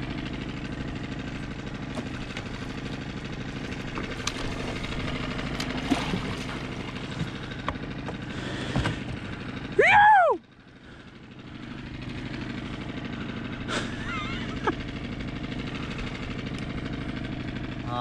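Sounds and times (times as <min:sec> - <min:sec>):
outboard motor running: 0:00.0 - 0:18.0.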